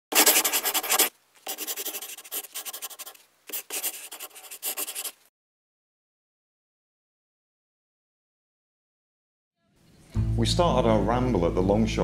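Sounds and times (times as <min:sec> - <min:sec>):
marker pen scratching: 0:00.1 - 0:05.2.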